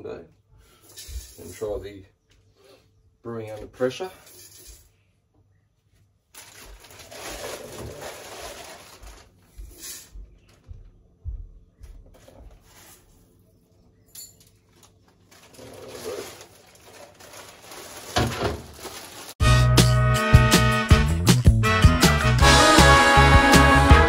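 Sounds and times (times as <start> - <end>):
plastic bag rustling: 6.2 - 10.1, 12.2 - 13.3, 14.6 - 19.4
grain shifting: 6.3 - 10.0, 14.5 - 19.4.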